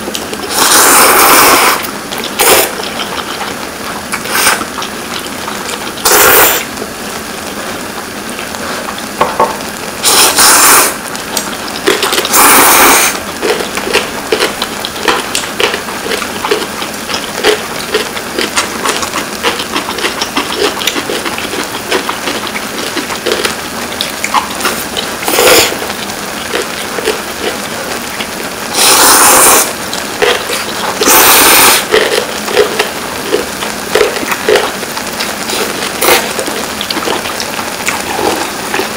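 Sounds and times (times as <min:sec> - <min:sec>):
noodles being slurped: 0:00.0 - 0:06.8, 0:10.0 - 0:23.6, 0:24.2 - 0:38.9
eating clicks and smacks: 0:11.3 - 0:28.9, 0:29.9 - 0:38.9.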